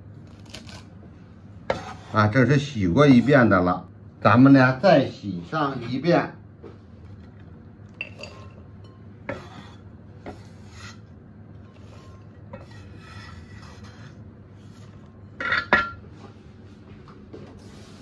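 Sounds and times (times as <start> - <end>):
cleaver scraping wooden board: 1.7 - 2.2.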